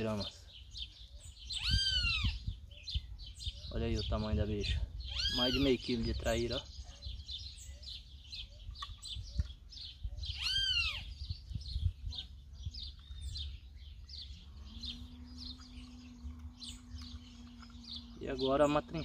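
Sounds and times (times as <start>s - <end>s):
birds chirping: 0.0s - 19.0s
steady low hum: 11.6s - 19.0s.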